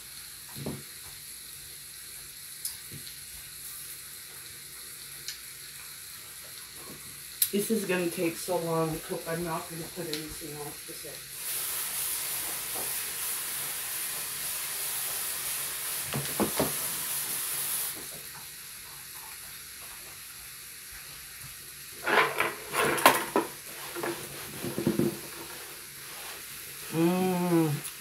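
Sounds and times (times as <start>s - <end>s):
meat sizzling in waffle maker: 0.0s - 28.0s
pan knocking and clattering: 22.0s - 25.5s.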